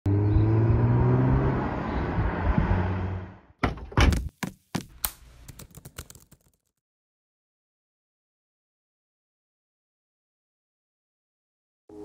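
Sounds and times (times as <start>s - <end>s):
heavy thunks: 3.6s - 5.0s.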